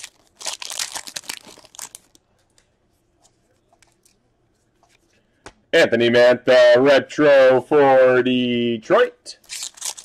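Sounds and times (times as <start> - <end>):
foil wrapper crinkling and tearing: 0.0 - 2.2, 9.4 - 10.0.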